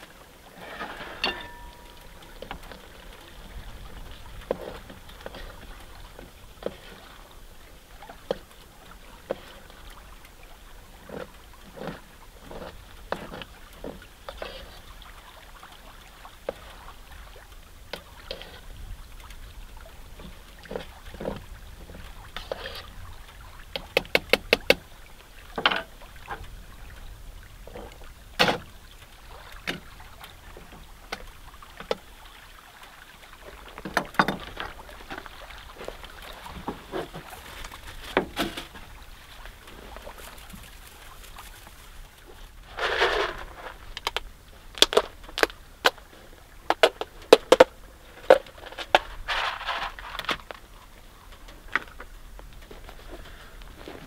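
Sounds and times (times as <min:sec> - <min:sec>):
pots and pans clattering: 0:00.5 - 0:02.7.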